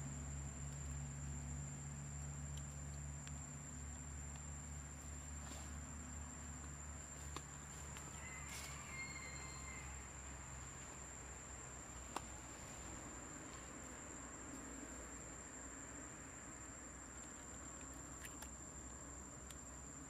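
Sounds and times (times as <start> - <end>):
low steady hum: 0.0 - 20.0
high-pitched insect drone: 8.1 - 10.1.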